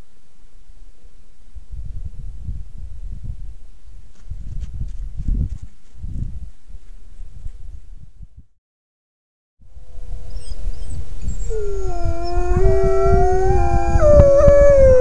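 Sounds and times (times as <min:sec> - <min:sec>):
low rumbling noise: 0:09.7 - 0:15.0
wolves howling in chorus: 0:11.4 - 0:15.0.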